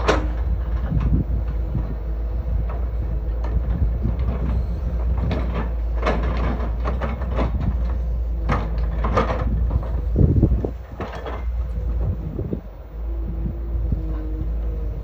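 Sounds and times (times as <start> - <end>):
excavator diesel engine running: 0.0 - 15.0.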